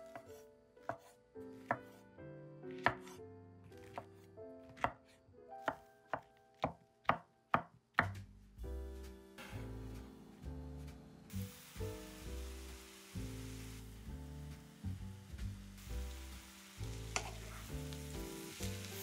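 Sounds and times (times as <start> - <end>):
knife chopping on cutting board: 0.0 - 2.0, 2.7 - 3.2, 3.8 - 8.2.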